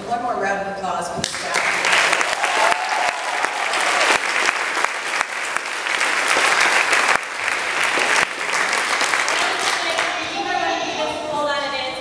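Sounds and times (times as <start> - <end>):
audience applauding: 1.4 - 10.6.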